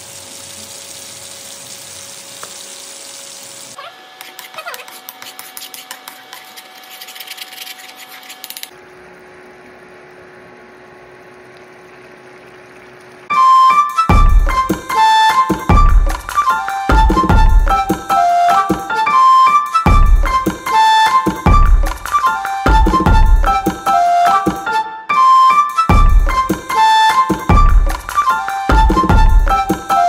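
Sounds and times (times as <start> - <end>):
fish sizzling in hot oil: 0.0 - 3.8
spatula scraping a pan: 4.2 - 8.7.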